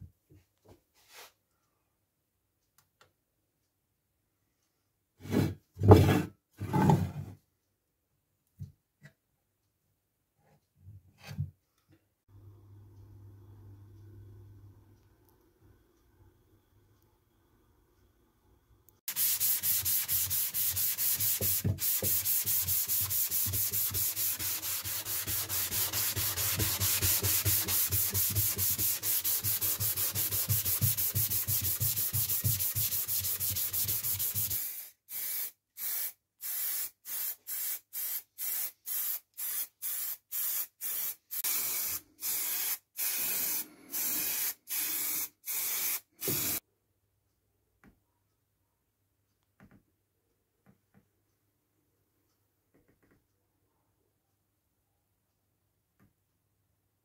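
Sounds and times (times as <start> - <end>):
sanding sponge rubbing metal: 19.1 - 34.6
spray paint can hissing: 19.1 - 46.6.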